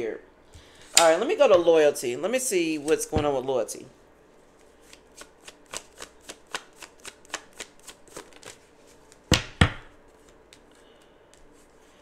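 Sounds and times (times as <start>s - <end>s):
cards being shuffled: 4.5s - 11.8s
cards slapping: 4.6s - 10.7s.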